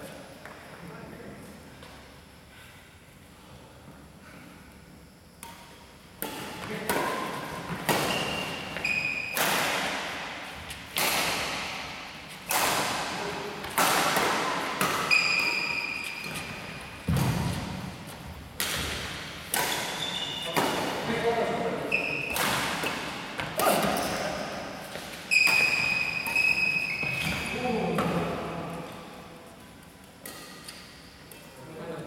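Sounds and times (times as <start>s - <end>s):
racquets hitting shuttlecock: 5.4s - 21.3s, 22.2s - 28.4s
shoes squeaking on court: 7.6s - 9.4s, 14.6s - 19.0s, 19.6s - 20.6s, 21.8s - 28.2s.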